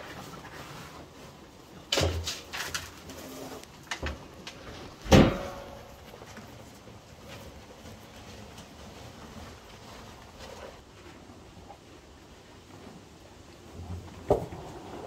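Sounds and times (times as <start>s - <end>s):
cattle snuffling through feed: 0.0s - 5.1s, 5.7s - 15.0s.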